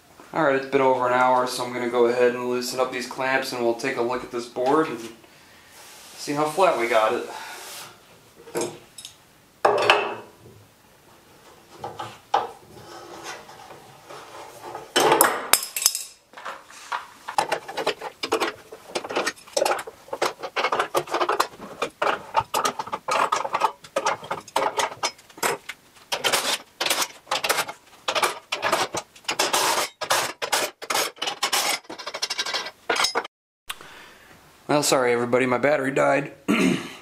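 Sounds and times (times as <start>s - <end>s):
metal clicks scrapes and clanks: 17.3s - 33.3s.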